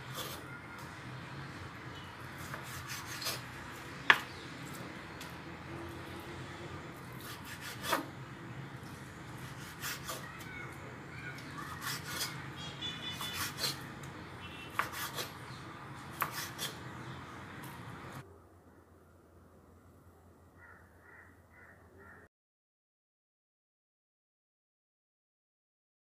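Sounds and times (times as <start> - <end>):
knife slicing through meat: 2.4 - 3.5, 7.2 - 8.1, 9.4 - 10.3, 11.6 - 12.4, 13.1 - 13.8, 14.7 - 15.4, 16.1 - 16.8.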